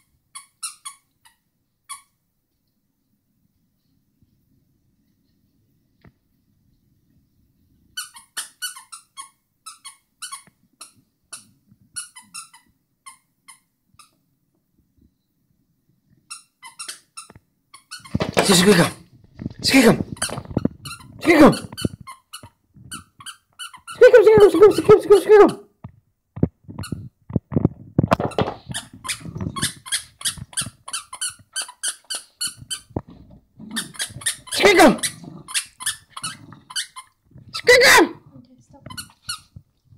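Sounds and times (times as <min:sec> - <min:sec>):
squeaky dog toy squeaking: 0:00.3 - 0:02.2, 0:08.0 - 0:14.2, 0:16.3 - 0:19.0, 0:19.7 - 0:25.7, 0:28.2 - 0:33.0, 0:33.7 - 0:38.2, 0:38.8 - 0:39.5.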